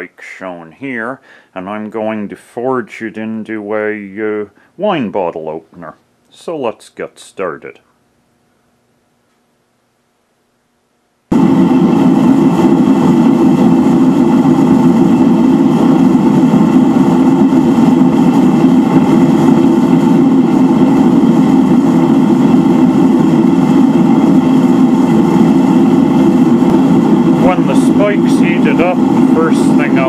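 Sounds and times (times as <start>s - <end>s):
gas burner rushing: 11.3s - 30.0s.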